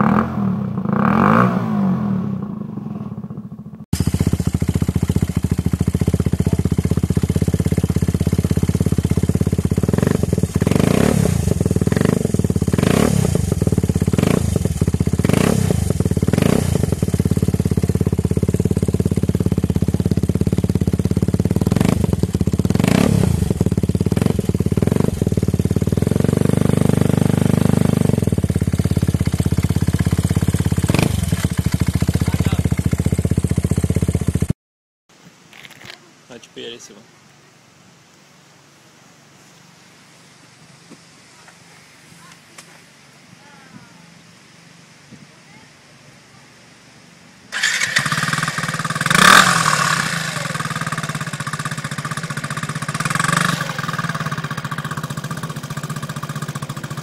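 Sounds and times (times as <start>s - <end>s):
scooter engine idling and blipped: 0.0s - 34.6s, 47.5s - 57.0s
scooter engine revving: 0.0s - 34.6s, 47.5s - 57.0s.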